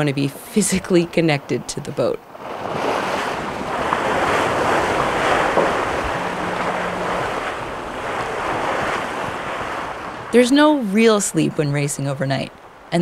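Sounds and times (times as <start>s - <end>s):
water rushing past a hull: 0.6s - 13.0s
wind buffeting the microphone: 2.4s - 11.9s.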